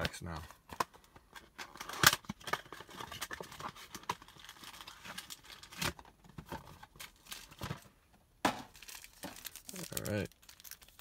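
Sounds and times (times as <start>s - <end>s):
foil wrappers crinkling and tearing: 8.7s - 11.0s.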